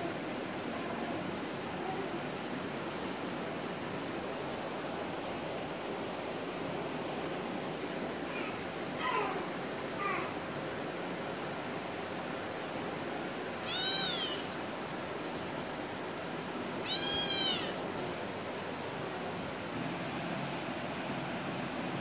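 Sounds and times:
steady hiss: 0:00.0 - 0:20.0
kitten meowing: 0:13.6 - 0:14.5, 0:16.8 - 0:17.8.

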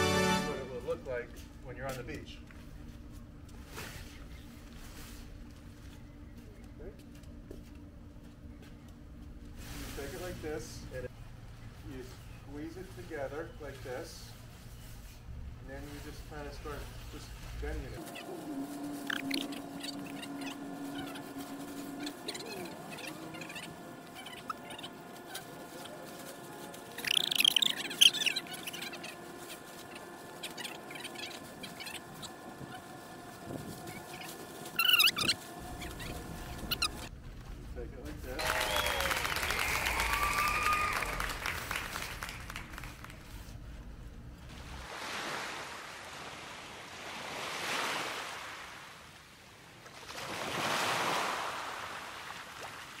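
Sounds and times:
bird chirps: 0:18.0 - 0:25.0, 0:26.9 - 0:32.4, 0:33.9 - 0:37.1
waves rushing and washing back: 0:44.5 - 0:53.0.

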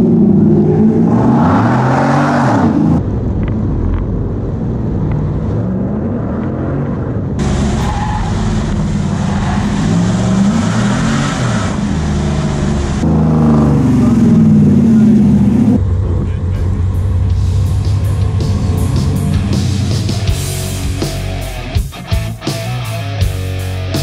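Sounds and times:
engine revving: 0:00.0 - 0:03.1, 0:04.8 - 0:24.0
tire squeal: 0:07.4 - 0:12.4.

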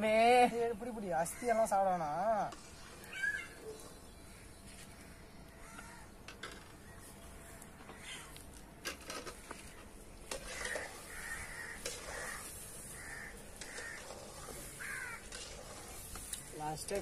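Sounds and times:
bird cawing: 0:03.0 - 0:08.4, 0:09.5 - 0:16.7.

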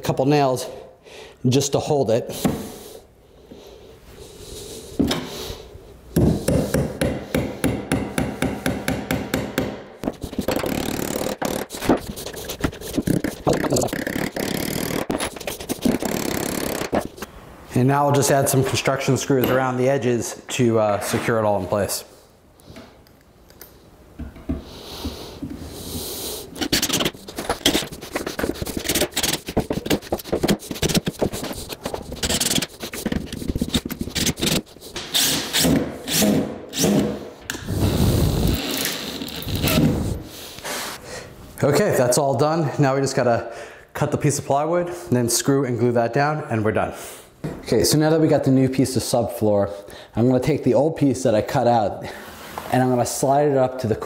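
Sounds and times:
hammer driving nails into wood: 0:06.2 - 0:12.0.

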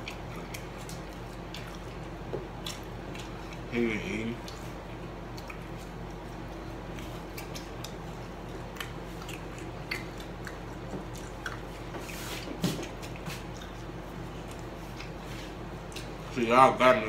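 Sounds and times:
people chewing: 0:00.0 - 0:16.3
low steady hum: 0:00.0 - 0:17.0
mouth clicks and smacks: 0:05.3 - 0:06.2, 0:07.3 - 0:11.7.

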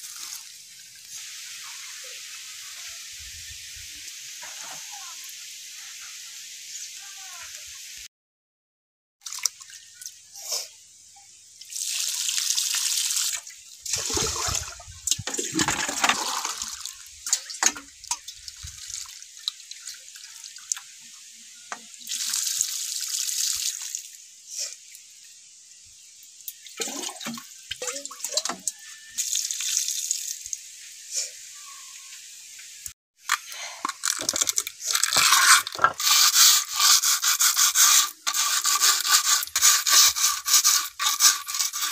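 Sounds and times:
water splashing onto ground: 0:11.7 - 0:20.0
scrub brush scrubbing stone: 0:33.3 - 0:41.9.

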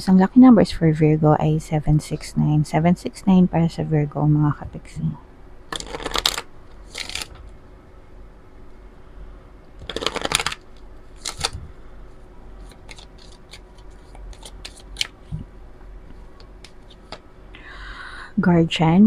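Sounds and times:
cards clicking and tapping: 0:05.7 - 0:07.4, 0:09.8 - 0:10.6, 0:11.2 - 0:11.6, 0:12.6 - 0:15.4
cards shuffling: 0:05.7 - 0:07.5, 0:09.8 - 0:11.7, 0:12.6 - 0:15.4, 0:16.4 - 0:17.2.

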